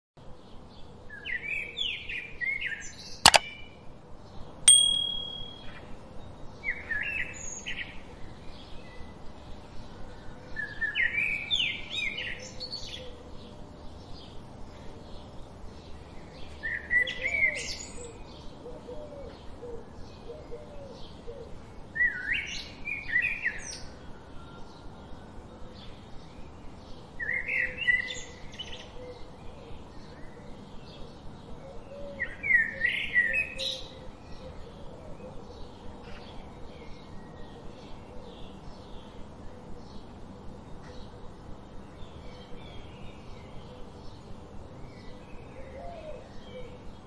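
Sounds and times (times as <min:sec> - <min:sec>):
sharp click: 0:03.3 - 0:03.5, 0:04.7 - 0:05.7
bright ding: 0:04.7 - 0:05.8.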